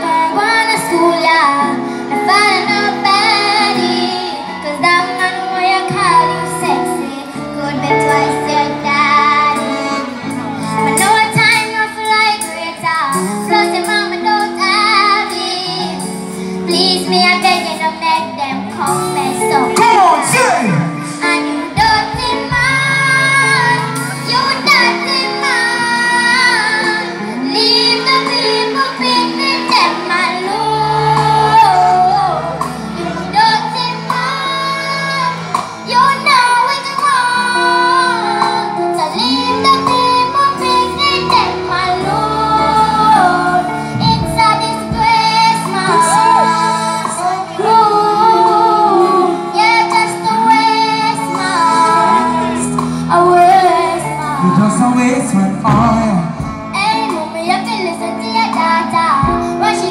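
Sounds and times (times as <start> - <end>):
girl singing into microphone: 0.0 - 59.9
instrumental accompaniment: 0.0 - 59.9.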